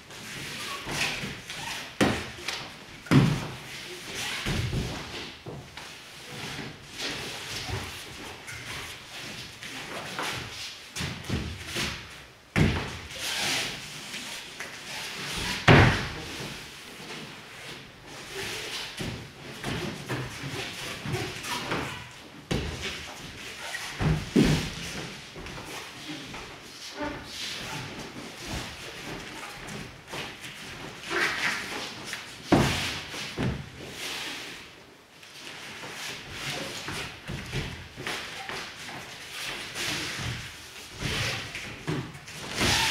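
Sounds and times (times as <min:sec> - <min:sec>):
bodies thumping on foam mats: 0:00.8 - 0:03.7, 0:10.4 - 0:13.1, 0:15.4 - 0:16.6, 0:18.9 - 0:25.7, 0:32.0 - 0:34.0
body thumping onto foam mats: 0:15.5 - 0:16.2, 0:22.5 - 0:25.5.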